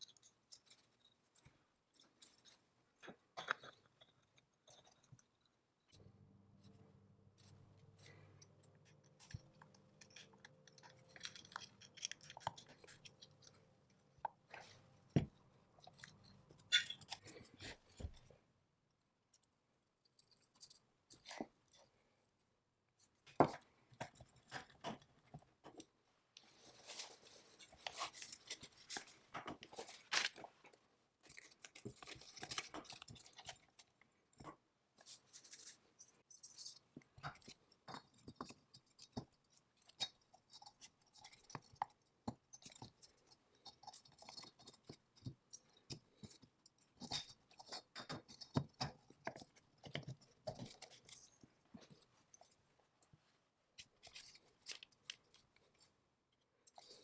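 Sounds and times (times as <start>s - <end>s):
rustling handling: 23.1s - 56.0s.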